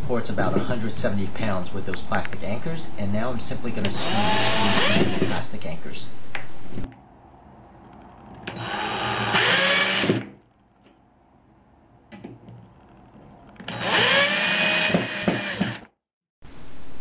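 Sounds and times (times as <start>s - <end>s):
cordless drill driving screws: 3.9s - 5.4s, 8.5s - 10.3s, 13.6s - 15.9s.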